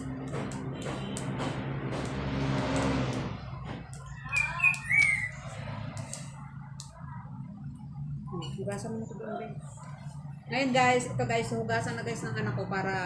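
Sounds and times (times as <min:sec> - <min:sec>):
vehicle passing: 0:00.0 - 0:06.7, 0:10.5 - 0:13.0
short high calls: 0:04.2 - 0:05.4.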